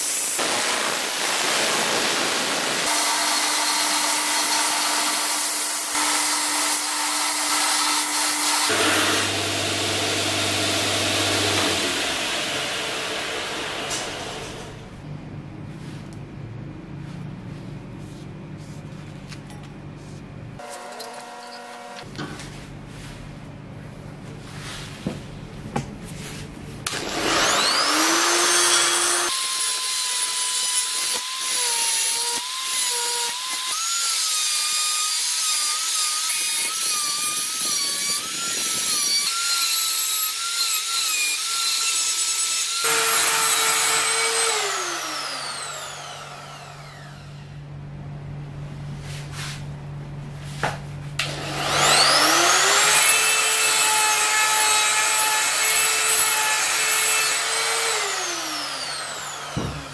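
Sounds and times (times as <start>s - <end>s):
die grinder grinding steel: 0.0s - 14.8s, 20.6s - 22.1s, 26.9s - 47.4s, 51.2s - 59.9s.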